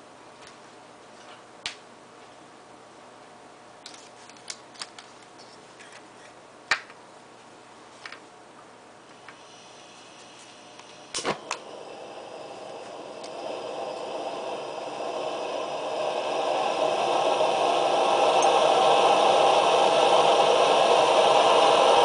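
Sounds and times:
gas hissing through stove valve: 9.1s - 22.0s.

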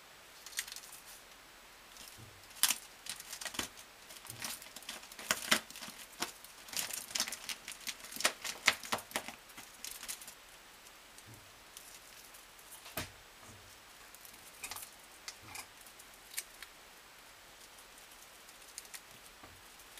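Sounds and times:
squirrel clawing at adhesive tape: 1.9s - 10.4s, 14.1s - 16.7s, 17.6s - 19.9s.

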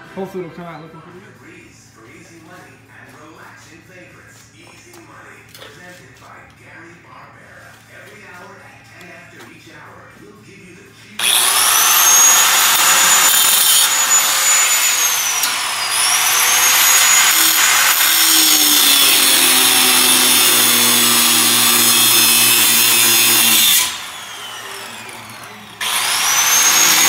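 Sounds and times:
angle grinder cutting steel: 11.2s - 27.0s.

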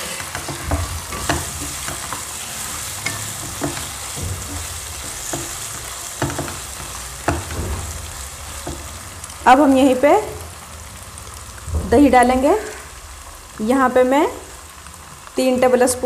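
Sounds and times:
spatula scraping and knocking pan: 0.0s - 9.4s
meat sizzling in oil: 0.0s - 16.0s.

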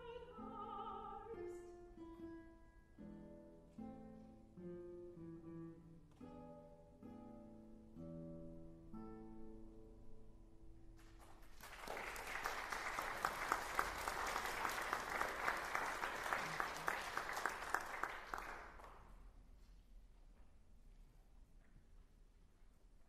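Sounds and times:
audience applauding: 11.0s - 19.1s.

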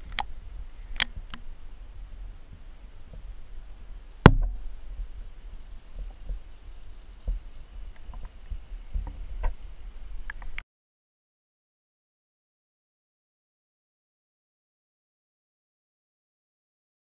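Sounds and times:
faint clicks: 0.9s - 1.5s, 10.2s - 10.6s
sharp knock: 4.3s - 4.6s.

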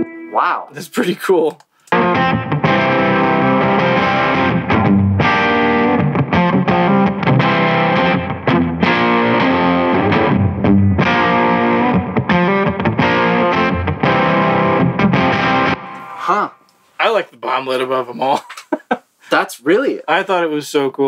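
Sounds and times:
distorted electric guitar chords: 0.0s - 0.3s, 1.9s - 16.2s.

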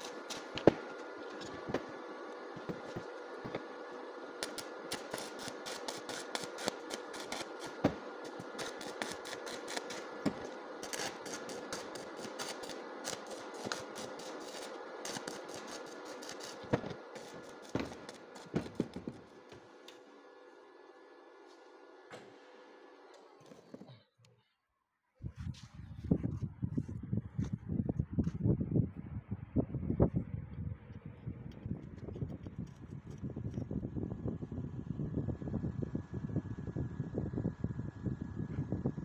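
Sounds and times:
welding arc crackling: 0.0s - 21.8s.

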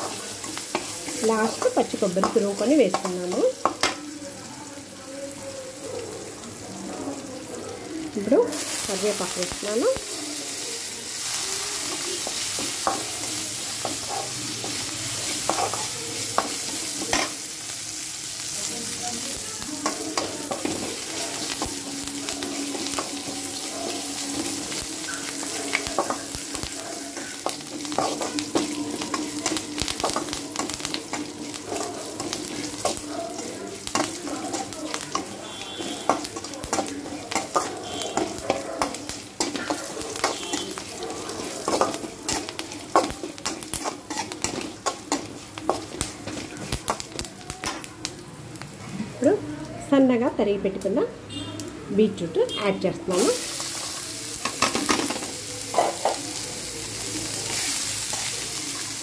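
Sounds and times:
food sizzling in hot oil: 0.0s - 59.0s
metal spatula scraping pan: 33.9s - 46.4s.

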